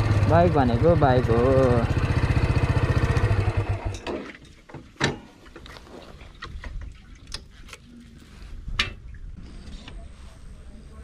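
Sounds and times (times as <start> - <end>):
motorcycle engine idling: 0.0 - 3.9.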